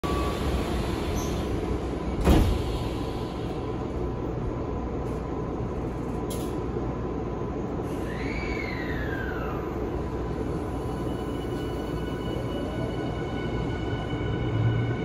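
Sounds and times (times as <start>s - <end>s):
train equipment hum: 0.0s - 15.0s
train doors closing thud: 2.1s - 3.0s.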